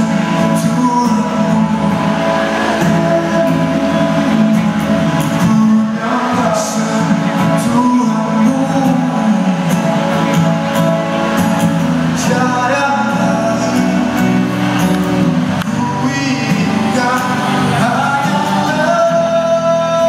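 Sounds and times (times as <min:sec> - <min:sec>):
man singing into a microphone: 0:00.0 - 0:10.9, 0:12.0 - 0:20.0
acoustic guitar strumming: 0:00.0 - 0:20.0.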